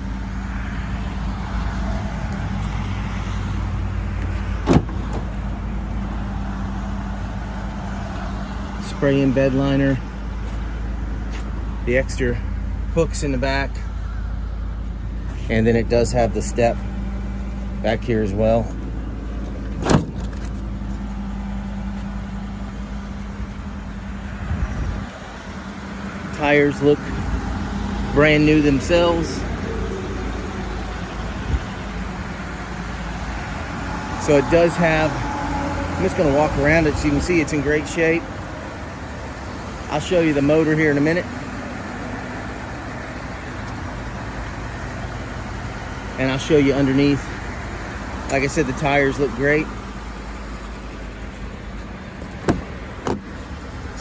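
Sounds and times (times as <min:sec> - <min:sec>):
truck engine idling: 0:00.0 - 0:54.0
tailgate latch click: 0:04.6 - 0:05.3, 0:19.6 - 0:20.6, 0:52.2 - 0:53.3.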